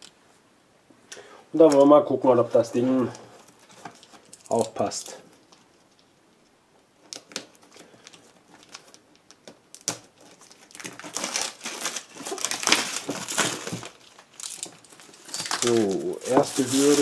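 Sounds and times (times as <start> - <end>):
plastic shrink-wrap crinkling: 7.1 - 17.0.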